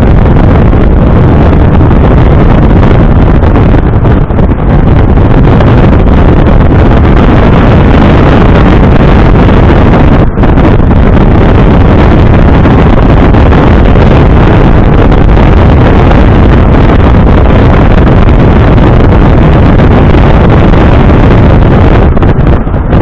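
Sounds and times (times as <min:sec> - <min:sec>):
road noise: 0:00.0 - 0:23.0
wind buffeting microphone: 0:00.0 - 0:23.0.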